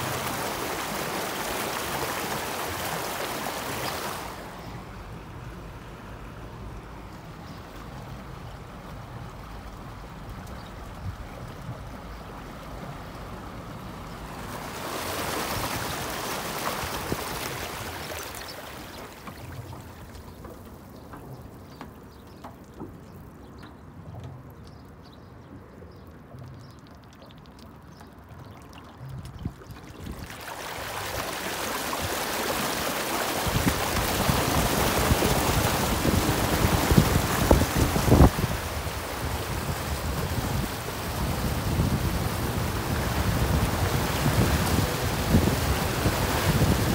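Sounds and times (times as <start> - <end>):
water lapping around wheel: 0.0 - 46.9
bow wave rushing and splashing: 14.4 - 19.8, 30.0 - 46.9.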